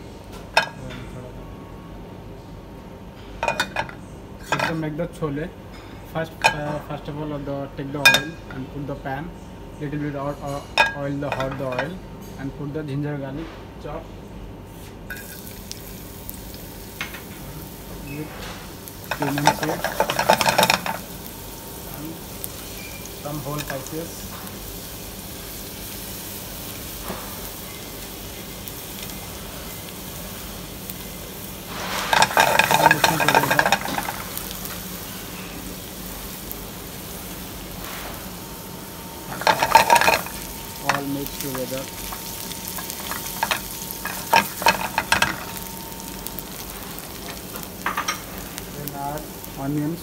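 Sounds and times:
spices sizzling in hot oil: 0:14.7 - 0:50.0.

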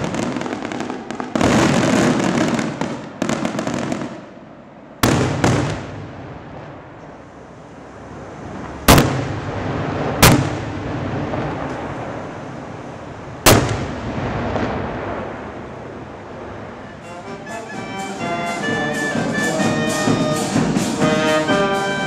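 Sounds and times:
fireworks bangs with echoing rumble: 0:00.0 - 0:07.4, 0:08.1 - 0:17.3.

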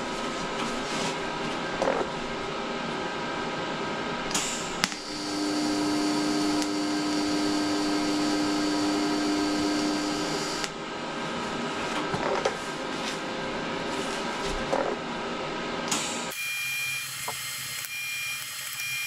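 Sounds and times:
welding arc buzzing hum: 0:04.1 - 0:11.1, 0:15.9 - 0:19.0
welding arc click: 0:04.3 - 0:05.2, 0:06.4 - 0:07.3, 0:10.4 - 0:10.8, 0:17.0 - 0:19.0.

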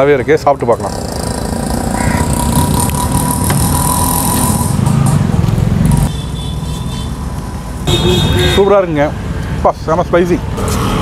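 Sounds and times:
vehicle engine passing: 0:00.8 - 0:06.2.

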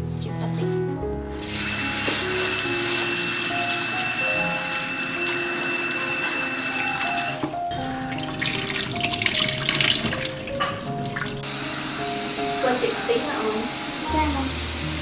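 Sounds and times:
background music: 0:00.0 - 0:15.0
tap water running into bowl: 0:01.4 - 0:11.5
water poured into sink: 0:07.0 - 0:11.6.

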